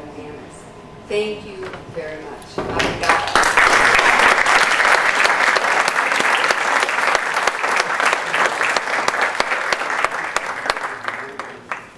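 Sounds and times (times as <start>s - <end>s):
audience applauding: 2.8s - 11.9s.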